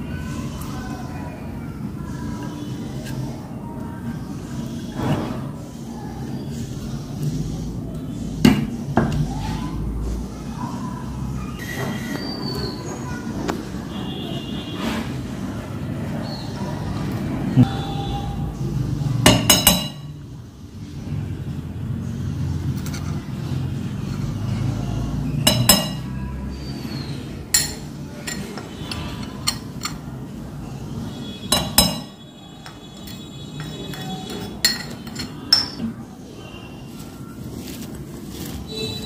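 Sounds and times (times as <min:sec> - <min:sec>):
spoon clinking against ceramic bowl: 0:19.3 - 0:20.1, 0:25.4 - 0:26.1, 0:27.5 - 0:30.0, 0:31.5 - 0:35.8.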